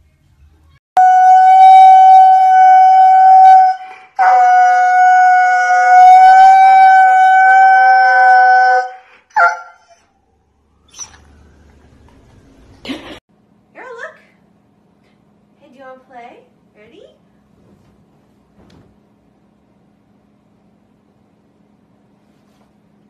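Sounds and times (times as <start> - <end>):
husky howling: 1.0 - 10.1.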